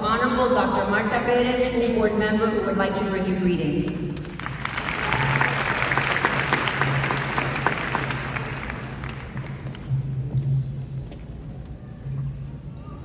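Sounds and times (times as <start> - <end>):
audience applauding: 4.2 - 9.9.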